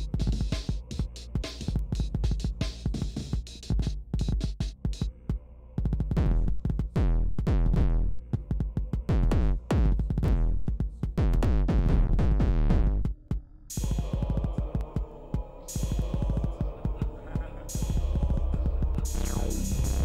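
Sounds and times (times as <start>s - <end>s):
drum machine beat: 0.0s - 5.2s, 5.8s - 15.1s, 15.7s - 20.0s
throbbing drone with hiss: 13.7s - 20.0s.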